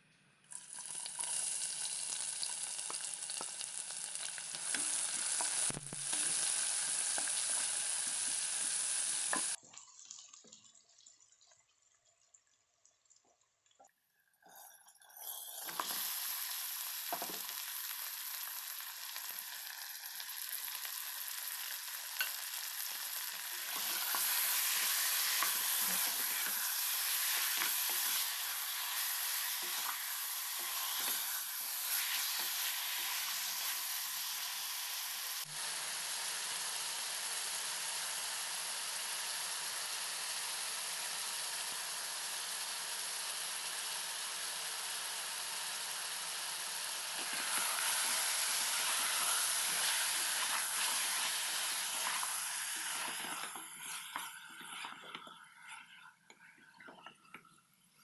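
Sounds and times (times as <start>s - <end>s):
chicken sizzling in hot oil: 0.5s - 9.6s, 14.5s - 56.1s
spatula scraping pot: 23.5s - 33.2s, 47.2s - 57.0s.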